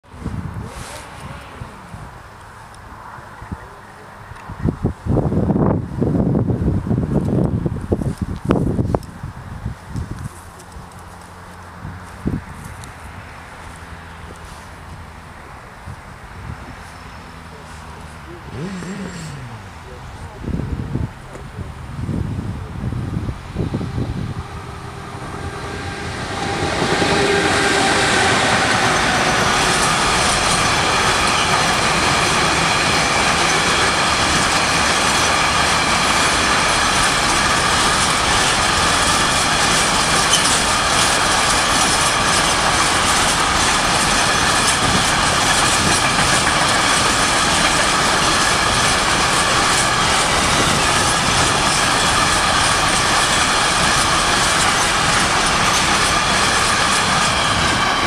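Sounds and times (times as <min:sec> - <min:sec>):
freight train passing: 0:00.0 - 0:58.0
wheels clattering on rails: 0:22.5 - 0:58.0
steady high tones: 0:23.6 - 0:41.6.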